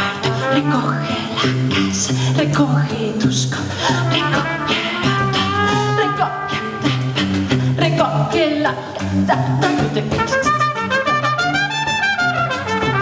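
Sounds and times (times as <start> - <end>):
trumpet: 0.0 - 2.0, 3.8 - 7.6, 10.1 - 13.0
person singing: 0.0 - 10.4
drum kit with cymbals: 0.0 - 13.0.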